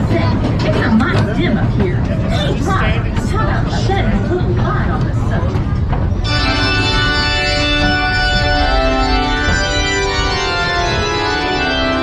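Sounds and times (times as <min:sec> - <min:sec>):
low rumble of ride train: 0:00.0 - 0:12.0
organ playing sustained chords: 0:06.2 - 0:12.0.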